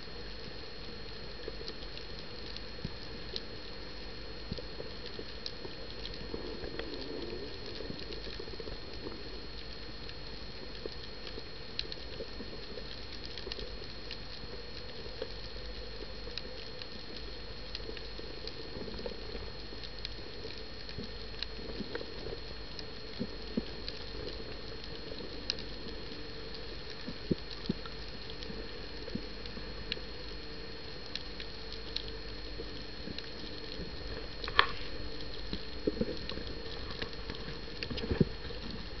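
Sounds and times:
steady hiss: 0.0s - 39.0s
underwater clicks and pops: 33.8s - 34.9s.

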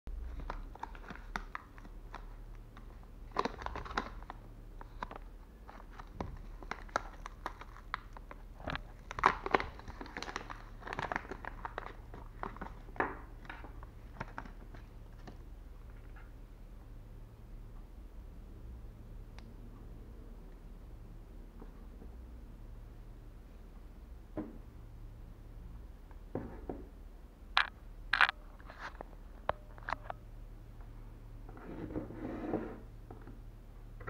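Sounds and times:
plastic packaging crinkling: 0.2s - 15.4s.

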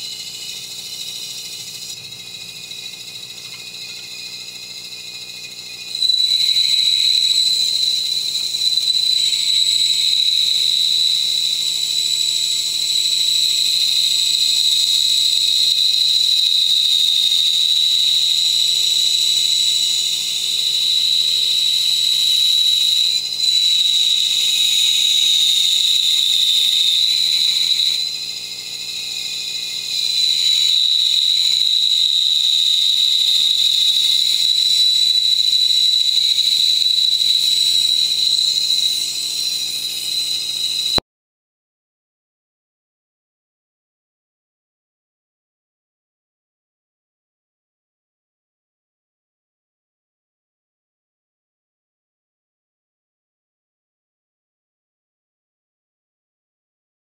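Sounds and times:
bandsaw cutting wood whine: 0.0s - 41.0s.

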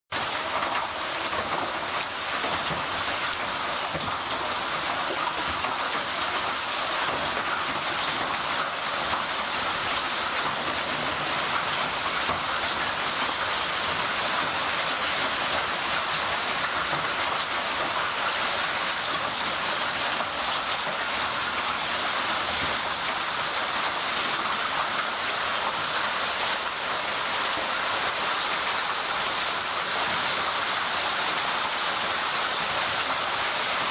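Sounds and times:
hail pattering on ground: 0.2s - 33.9s.

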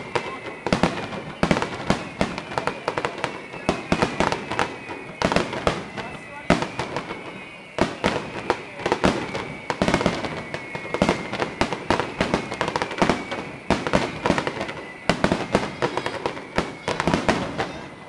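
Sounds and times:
fireworks bangs and crackles: 0.0s - 18.0s.

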